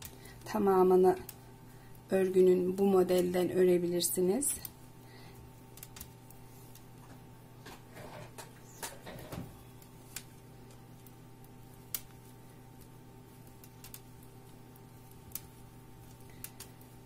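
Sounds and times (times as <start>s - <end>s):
faint steady hum: 0.0s - 17.0s
knitting needles clicking: 5.7s - 6.9s, 10.1s - 17.0s.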